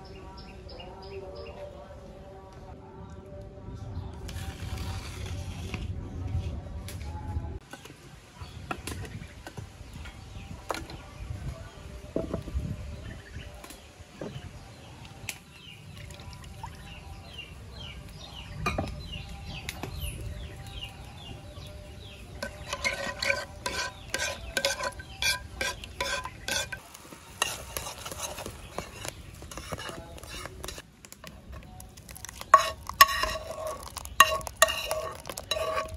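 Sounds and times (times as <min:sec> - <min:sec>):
wooden paddle scraping a pot: 0:22.3 - 0:35.9
utensil clattering against pot: 0:22.4 - 0:26.8, 0:32.2 - 0:35.9.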